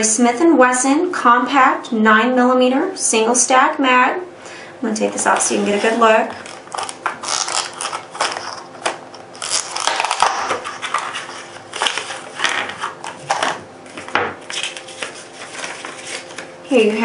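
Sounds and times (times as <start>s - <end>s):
paper rustling: 5.3s - 16.5s
plastic packaging crinkling: 5.7s - 16.6s.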